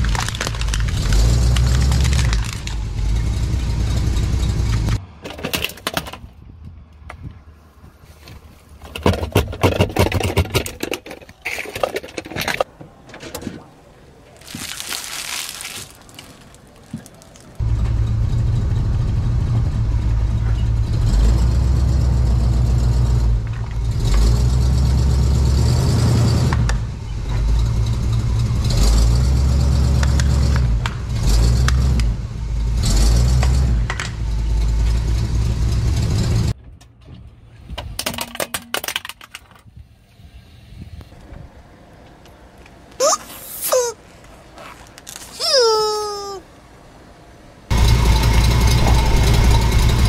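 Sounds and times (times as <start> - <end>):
plastic toy car cracking: 0.0 - 2.8, 37.8 - 39.7
truck engine rumbling: 0.0 - 38.0, 41.2 - 50.0.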